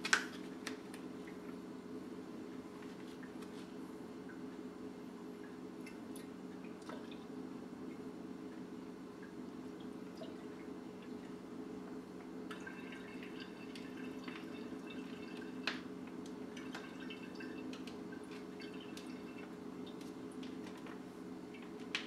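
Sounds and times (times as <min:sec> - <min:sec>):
low steady hum: 0:00.0 - 0:22.0
liquid dripping into glass jug: 0:12.5 - 0:15.9, 0:16.5 - 0:20.0.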